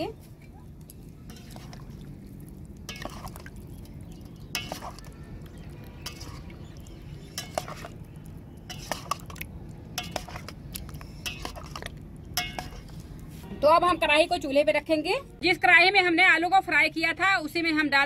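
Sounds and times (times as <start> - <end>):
spoon clinking in steel bowl: 4.5 - 5.0, 11.2 - 12.9.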